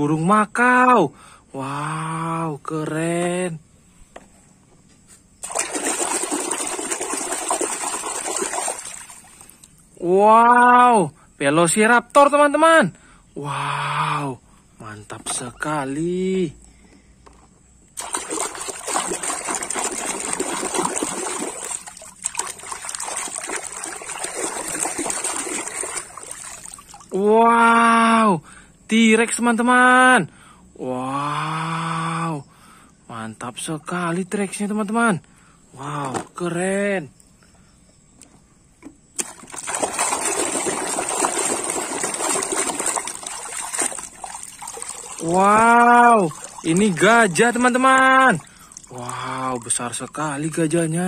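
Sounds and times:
water splashing in plastic tub: 5.4s - 9.8s, 17.9s - 27.2s, 38.8s - 51.0s.

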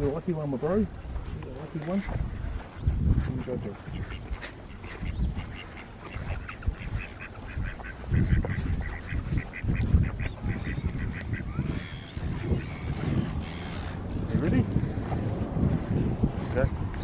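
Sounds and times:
wind rumble on microphone: 0.0s - 17.0s
duck calling: 3.3s - 14.2s.

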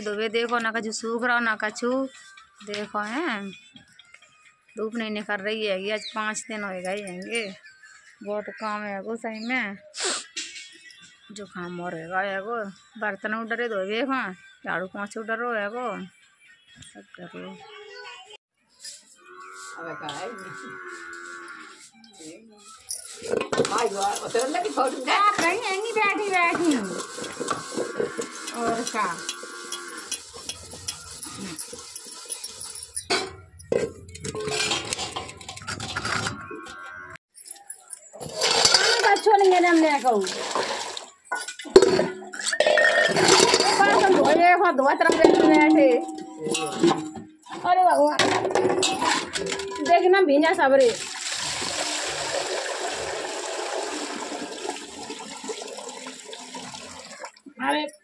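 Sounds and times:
steel utensils clinking: 22.7s - 36.6s, 37.4s - 50.2s
water pouring into steel pot: 23.0s - 33.0s, 38.3s - 44.3s, 50.8s - 57.5s.

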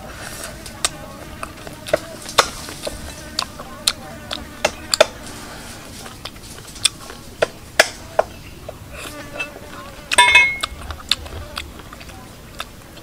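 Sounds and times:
utensils clinking against dishes: 10.2s - 10.8s.

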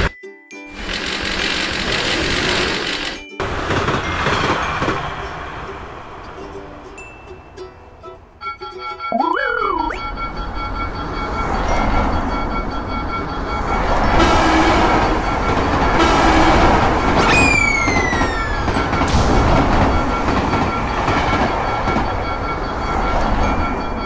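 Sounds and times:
passenger train rumbling: 0.8s - 8.4s, 10.0s - 24.0s
crossing bell ringing: 9.9s - 17.1s, 17.9s - 24.0s
train horn: 14.2s - 15.1s, 15.9s - 16.9s.

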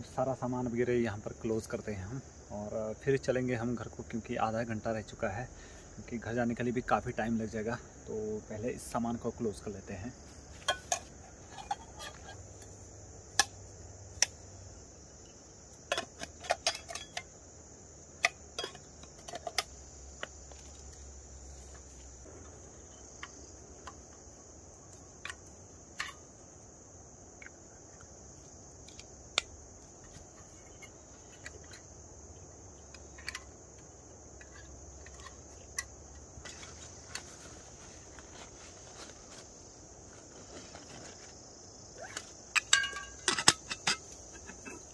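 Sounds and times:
crickets trilling: 0.0s - 44.9s
metal cookware clinking: 15.9s - 17.3s, 42.6s - 44.0s.

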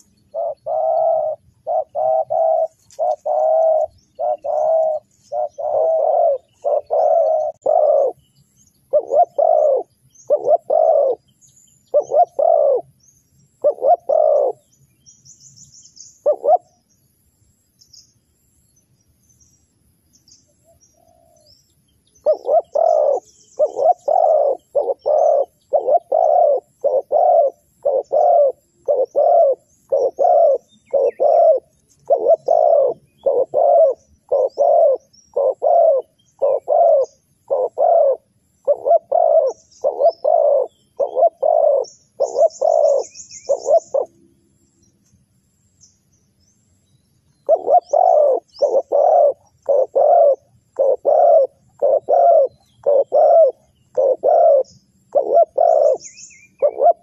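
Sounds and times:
dove cooing: 0.0s - 8.3s, 8.9s - 14.7s, 16.2s - 16.8s, 22.2s - 44.2s, 47.4s - 57.0s
faint high bird chirps: 0.0s - 57.0s.

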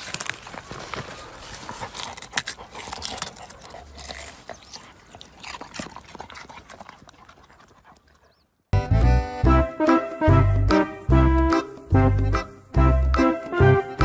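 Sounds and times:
dog digging in dry soil: 0.0s - 8.4s
music: 8.8s - 14.0s.

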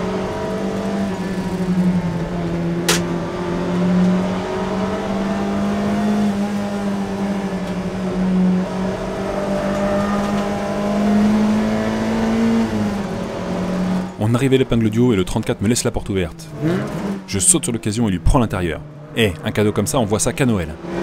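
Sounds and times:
car engine revving hard: 0.0s - 14.2s, 16.5s - 17.3s, 20.7s - 21.0s.

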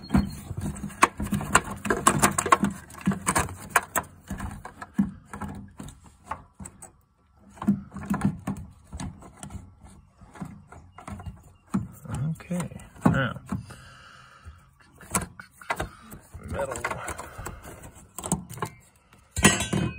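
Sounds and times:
plastic part clicking and rattling: 0.1s - 11.7s.

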